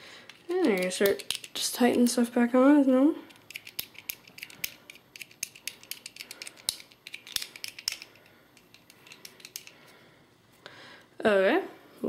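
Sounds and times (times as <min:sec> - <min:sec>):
plastic gun parts clicking: 0:00.3 - 0:01.7, 0:03.3 - 0:09.8.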